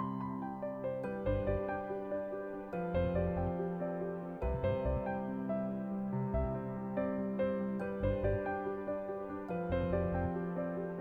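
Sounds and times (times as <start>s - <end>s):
low pulsing bass: 4.4s - 5.1s, 8.0s - 8.4s, 9.7s - 10.3s.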